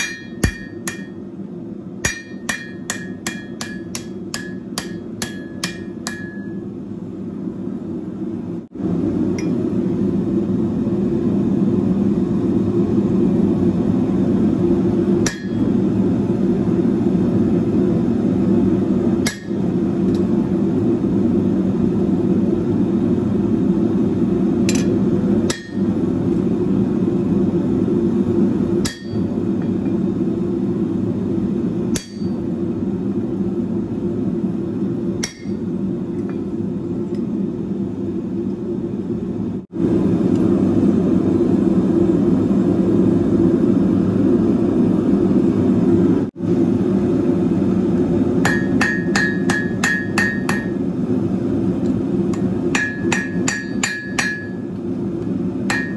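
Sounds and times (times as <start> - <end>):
hammer ringing on anvil: 0.0 - 1.2, 2.0 - 6.6, 15.2 - 15.7, 19.2 - 19.6, 25.5 - 25.9, 28.8 - 29.8, 32.0 - 32.4, 35.2 - 35.6, 48.4 - 50.8, 52.7 - 54.6, 55.7 - 55.9
hammer striking chisel: 0.0 - 1.2, 2.0 - 6.6, 15.2 - 15.6, 19.3 - 19.6, 32.0 - 32.4, 35.2 - 35.6, 48.4 - 50.8, 52.7 - 54.6, 55.7 - 55.9.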